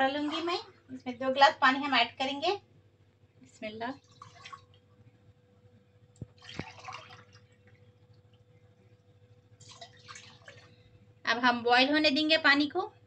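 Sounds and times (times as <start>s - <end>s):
water pouring into metal pot: 6.4s - 7.7s.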